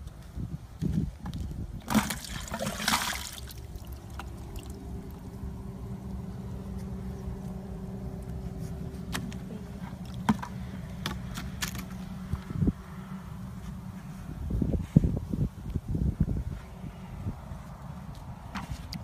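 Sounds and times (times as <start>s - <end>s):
water splashing into plastic bucket: 1.2s - 4.8s
steady low hum: 1.6s - 19.0s.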